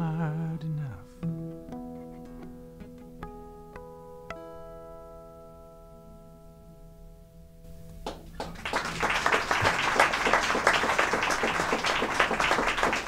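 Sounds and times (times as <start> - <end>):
acoustic guitar chord ringing: 0.0 - 8.4
audience applause: 8.0 - 13.0.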